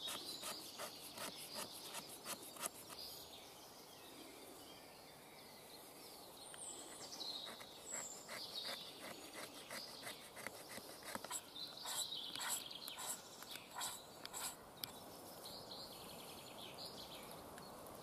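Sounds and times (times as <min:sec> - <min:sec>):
steel striker scraping wood: 0:00.0 - 0:03.1, 0:06.9 - 0:14.9
birds chirping faintly: 0:00.0 - 0:18.0
scraping a metal block: 0:07.5 - 0:14.6.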